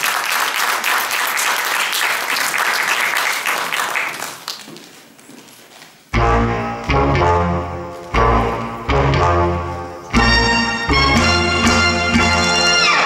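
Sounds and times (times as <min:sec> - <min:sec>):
audience applauding: 0:00.0 - 0:05.0
music with low notes: 0:06.1 - 0:13.0.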